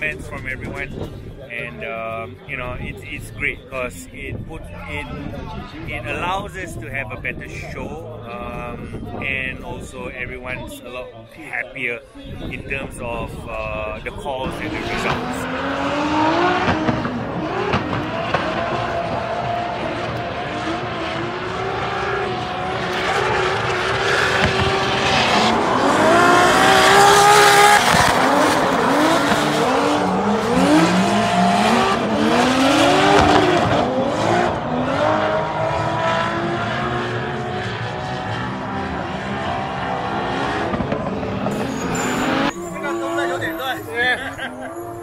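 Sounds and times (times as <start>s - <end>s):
car engines revving: 0.0s - 11.8s, 12.4s - 45.0s.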